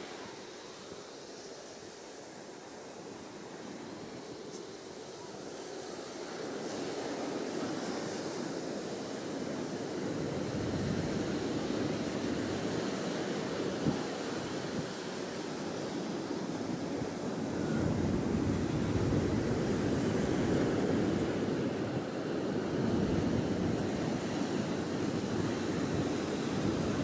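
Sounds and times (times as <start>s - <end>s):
surf on a beach: 0.0s - 27.0s
wind on microphone: 7.8s - 27.0s.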